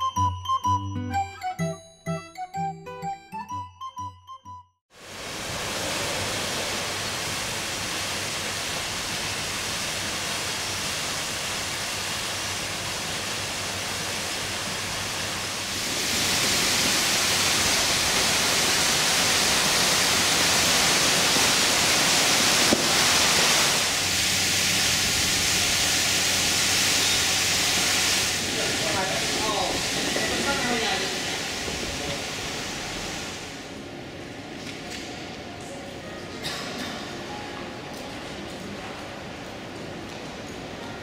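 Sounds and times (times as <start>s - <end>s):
fountain water splashing: 5.0s - 33.7s.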